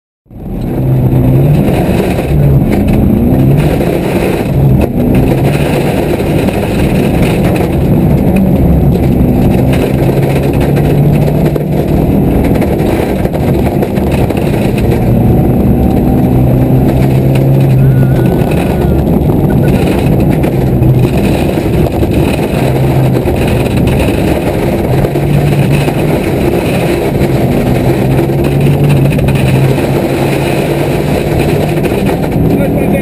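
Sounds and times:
car engine revving through gears: 0.3 - 33.0
tyre and road noise: 0.3 - 33.0.

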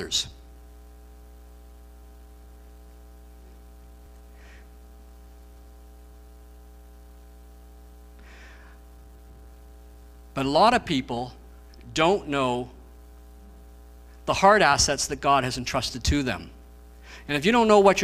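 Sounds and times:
faint hiss: 0.0 - 6.4
electrical mains hum: 0.0 - 18.0.

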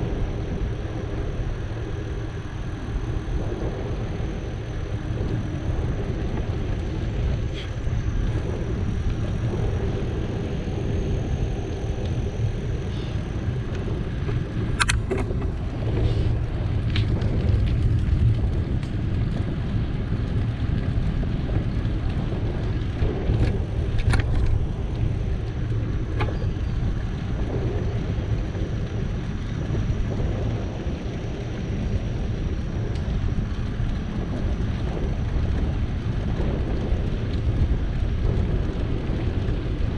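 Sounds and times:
bicycle tyres rolling: 0.0 - 39.9
wind rumble on the microphone: 0.0 - 39.9
sharp clicks or rattles: 14.8 - 15.5.

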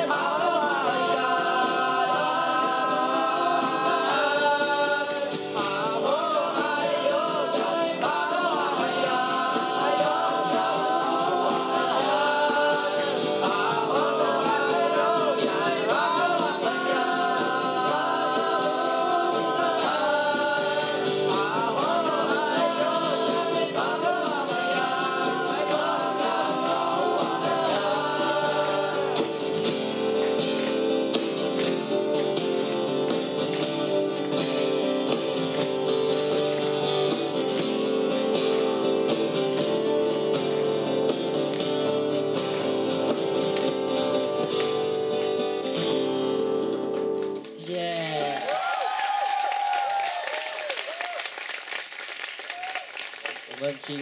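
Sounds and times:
boys singing in harmony: 0.0 - 30.0
acoustic guitar: 0.0 - 54.0.

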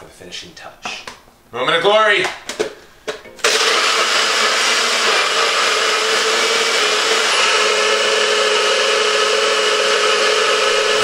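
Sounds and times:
blender motor running: 3.4 - 11.0.

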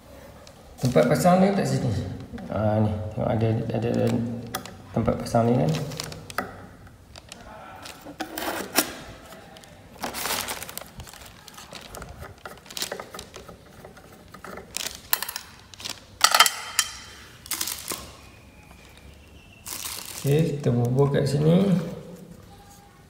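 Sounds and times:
metal hardware clicking and clinking: 14.4 - 17.1.

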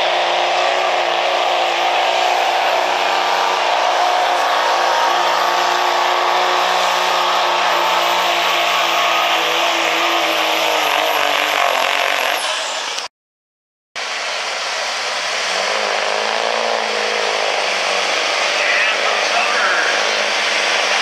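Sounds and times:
diesel engine running flat out: 0.0 - 13.1, 14.0 - 21.0
turbo whine: 14.0 - 21.0.

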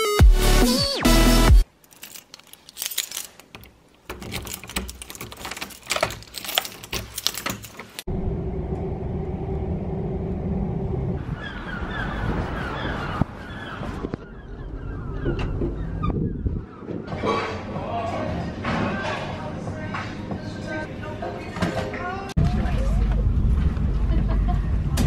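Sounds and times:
keys jangling: 1.8 - 8.1
door lock and handle clicks: 2.2 - 8.0.

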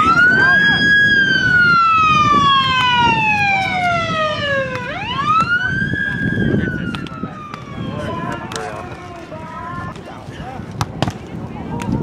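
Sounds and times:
emergency siren wailing: 0.0 - 8.9.

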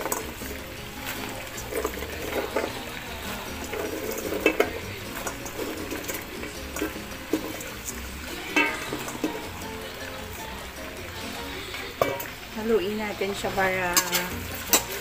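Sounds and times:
beans dropping into a wok: 3.6 - 9.6.

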